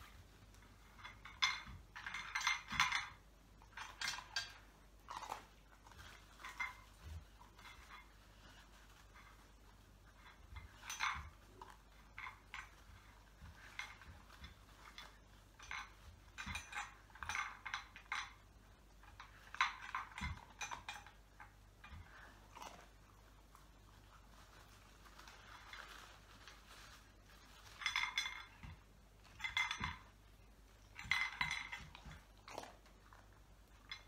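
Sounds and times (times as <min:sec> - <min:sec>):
tin and toys clinking and rattling: 0:00.6 - 0:22.8, 0:25.1 - 0:32.8, 0:33.6 - 0:34.0.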